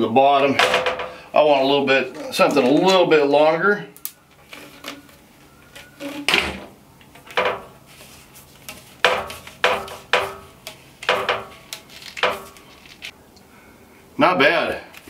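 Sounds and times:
plastic hose crackling: 4.0 - 13.1.

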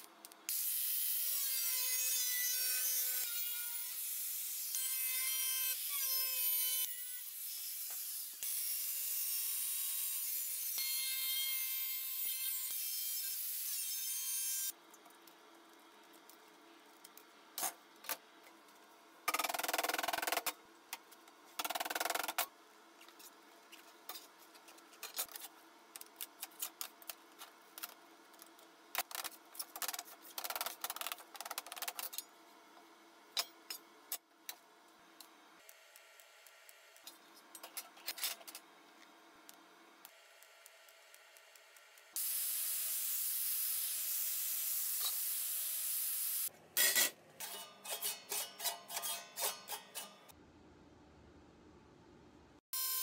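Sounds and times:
angle grinder cutting steel: 0.5 - 14.7, 42.2 - 50.3.

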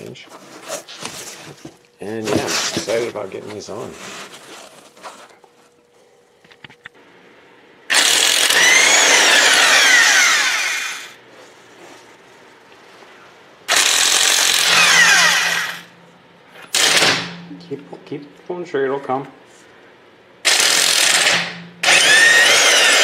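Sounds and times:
impact wrench running: 7.9 - 11.2, 13.7 - 15.9, 16.7 - 17.4, 20.4 - 23.0.

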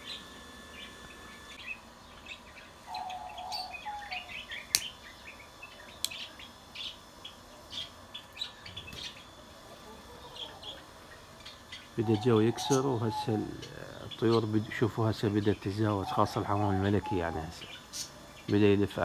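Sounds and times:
small birds chirping: 0.0 - 19.0
sharp click: 4.7 - 4.9.

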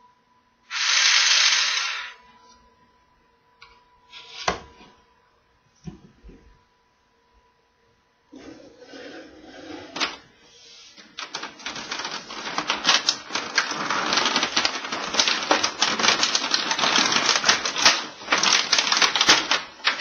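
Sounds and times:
plastic scraping against foam: 8.4 - 10.2, 10.9 - 20.0.

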